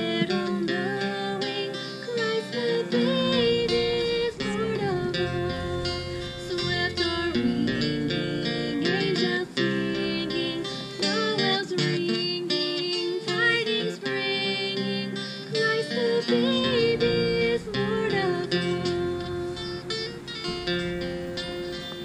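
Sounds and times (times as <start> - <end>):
person singing: 0.0 - 21.5
acoustic guitars strummed: 0.0 - 22.0.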